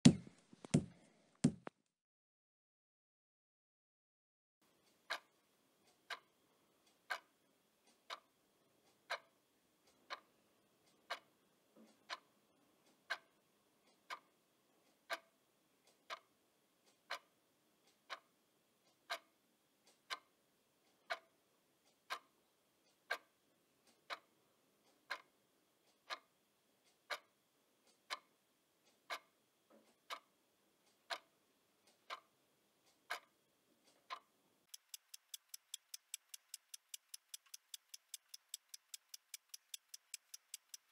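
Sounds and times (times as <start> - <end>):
clock ticking: 34.0 - 40.9.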